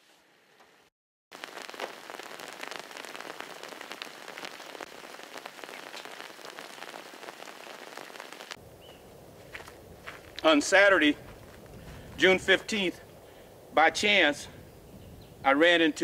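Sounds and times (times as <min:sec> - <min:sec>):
raindrops ticking: 0:01.3 - 0:08.6
light rain patter: 0:01.3 - 0:13.5.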